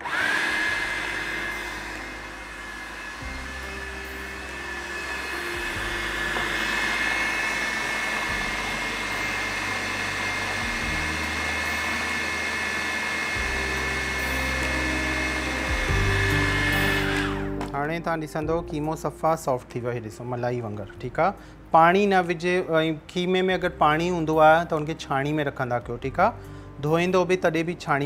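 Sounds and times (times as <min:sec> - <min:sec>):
food processor motor whine: 0:00.0 - 0:17.7.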